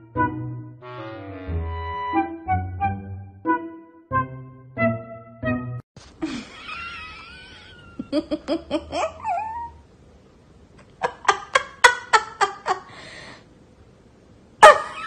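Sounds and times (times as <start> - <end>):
people laughing: 6.2 - 9.6, 11.0 - 12.9
dog whining and yowling: 9.2 - 9.8.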